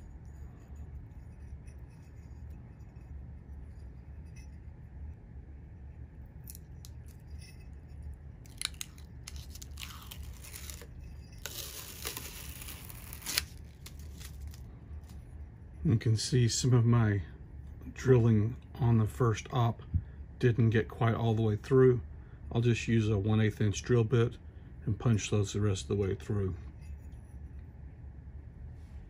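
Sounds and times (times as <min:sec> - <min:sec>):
steady low hum: 0:00.0 - 0:29.0
plastic film peeling off: 0:08.5 - 0:14.6.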